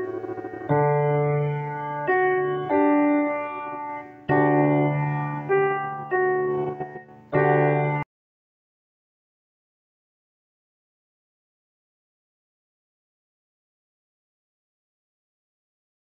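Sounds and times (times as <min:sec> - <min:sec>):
piano chords: 0:00.0 - 0:08.1.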